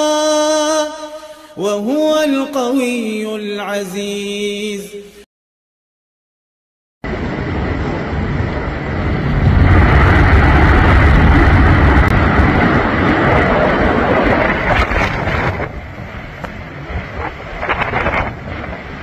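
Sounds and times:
strong wind blowing: 7.0s - 19.0s
wind rumble on microphone: 7.0s - 19.0s.

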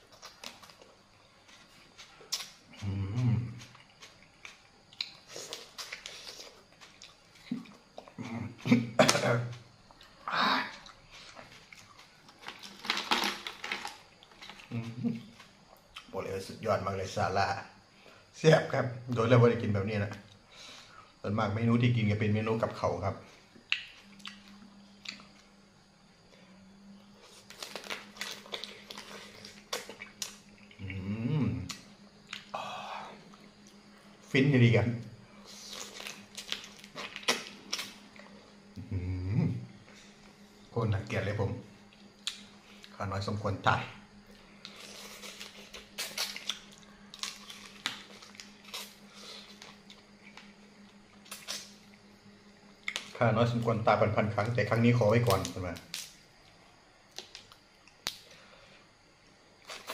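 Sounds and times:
steady low hum: 0.0s - 59.9s.

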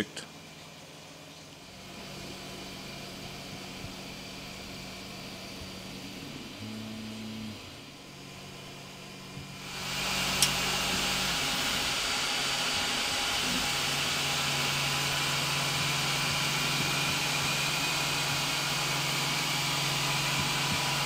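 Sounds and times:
printer fans and motors humming: 0.0s - 21.0s.

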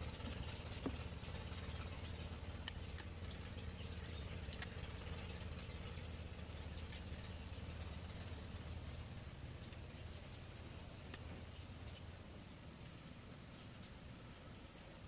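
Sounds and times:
low background hum: 0.0s - 15.0s
bamboo strips clicking: 2.6s - 4.8s.

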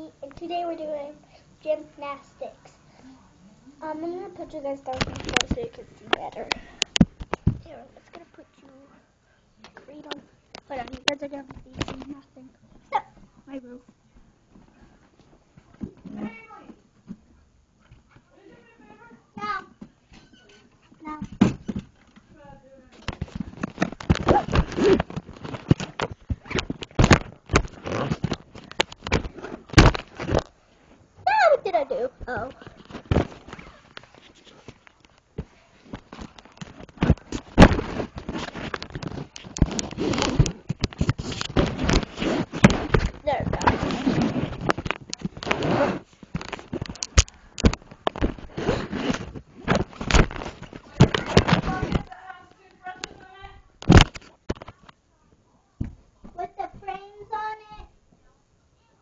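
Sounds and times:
microphone handling noise: 4.8s - 7.8s, 23.0s - 31.1s, 32.3s - 52.2s, 53.0s - 55.0s
knocks and thumps on camera: 4.9s - 7.8s, 21.1s - 22.3s, 23.0s - 30.6s, 32.2s - 34.8s, 35.4s - 52.2s, 53.0s - 55.0s, 55.8s - 57.0s
rubbing and scraping: 23.0s - 30.9s, 31.8s - 52.2s
device rubbing against fabric: 36.8s - 46.8s, 48.2s - 50.0s.

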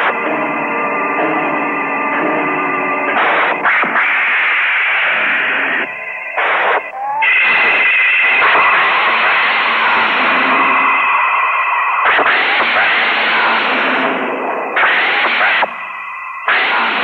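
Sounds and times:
loud hissing noise bursts: 3.7s - 17.0s.

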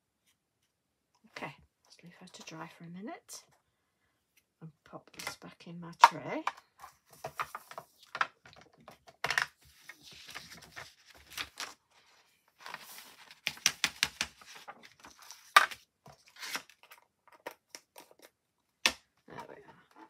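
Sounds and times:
paper rustling: 9.6s - 17.0s.

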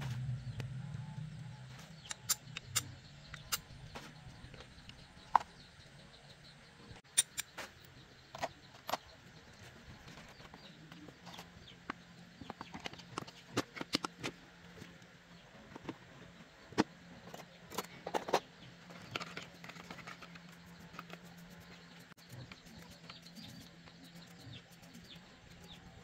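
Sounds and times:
faint low hum: 0.0s - 7.0s.

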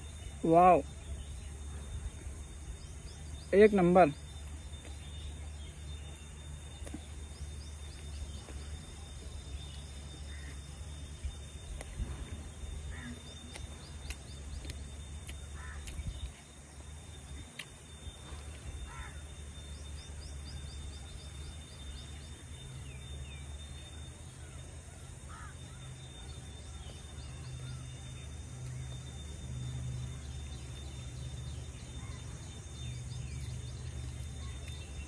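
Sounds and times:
birds calling: 0.0s - 35.0s
low steady rumble: 0.0s - 35.0s
thin steady high tone: 0.0s - 35.0s
crow-like caws: 15.6s - 15.8s, 18.9s - 19.2s, 25.3s - 25.6s.

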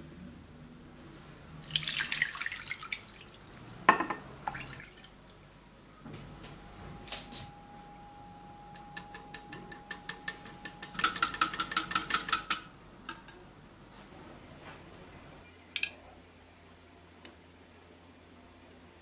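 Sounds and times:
whisk clinking against ceramic bowl: 8.8s - 13.3s.

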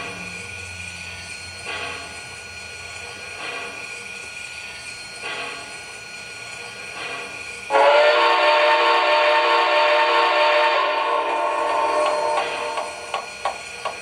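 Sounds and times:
soft steam hisses: 0.1s - 14.0s
steam whistle blast: 7.7s - 12.8s.

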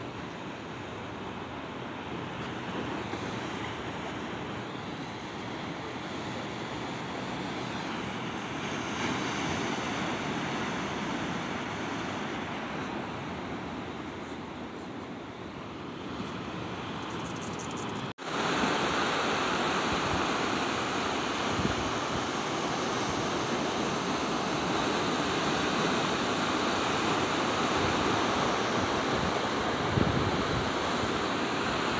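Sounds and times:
ocean waves breaking: 0.0s - 31.9s
wind gusting on microphone: 15.2s - 31.9s.

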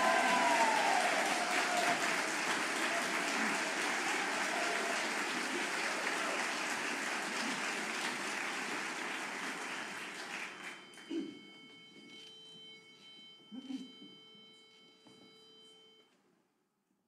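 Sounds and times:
audience applauding: 0.0s - 11.1s.

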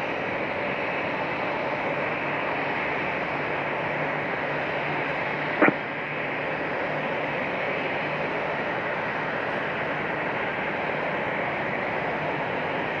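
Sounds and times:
faint hum: 0.0s - 13.0s
radio static hiss: 5.5s - 6.0s.

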